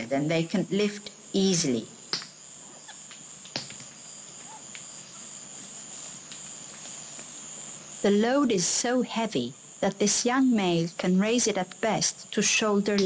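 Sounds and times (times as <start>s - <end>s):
insects chorus: 0.0s - 13.0s
faint ticks: 2.1s - 7.8s.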